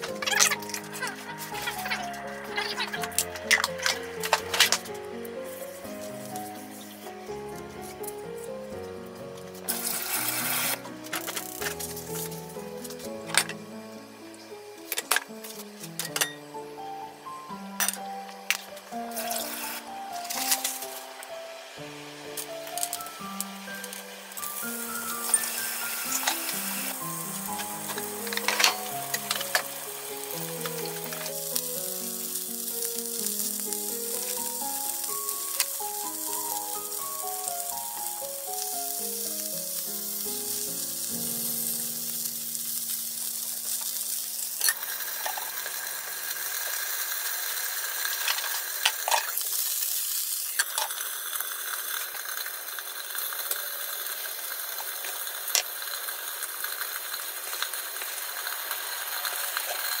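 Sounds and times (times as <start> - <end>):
gentle background music: 0.0 - 47.2
food sizzling in oil: 0.0 - 60.0.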